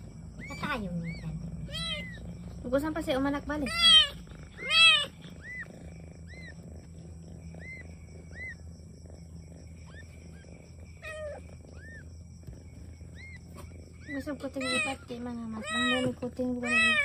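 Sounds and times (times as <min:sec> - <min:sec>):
cat meowing: 0:00.4 - 0:02.2, 0:03.6 - 0:05.7, 0:14.6 - 0:17.0.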